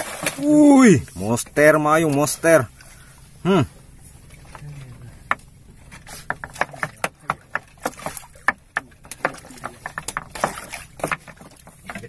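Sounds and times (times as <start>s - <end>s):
fish thrashing and splashing: 0.0s - 12.0s
knocks against wooden boat: 5.2s - 12.0s.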